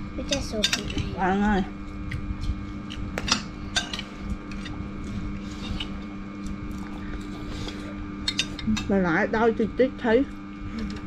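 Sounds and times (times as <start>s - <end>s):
steady low hum: 0.0s - 11.0s
metal spoons clicking on bowls: 8.3s - 9.0s.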